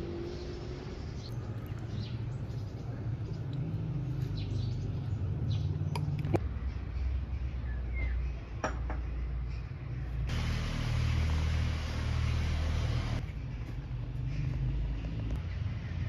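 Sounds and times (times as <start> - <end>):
hiss: 10.3 - 13.2.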